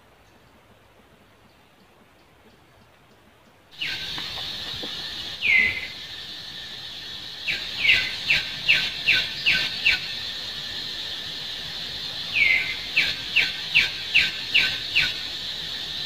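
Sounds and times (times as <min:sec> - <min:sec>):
bird calling in sliding notes: 0:03.8 - 0:16.0
steady high drone: 0:03.8 - 0:16.0.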